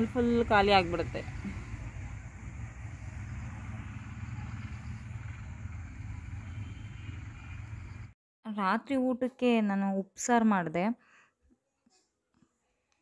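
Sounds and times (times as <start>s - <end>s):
distant road traffic rumble: 0.0s - 8.2s.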